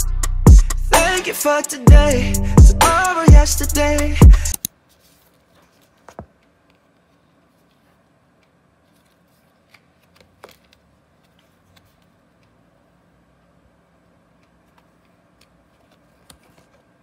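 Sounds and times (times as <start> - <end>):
card insert tapping and rustling: 9.6 - 12.1.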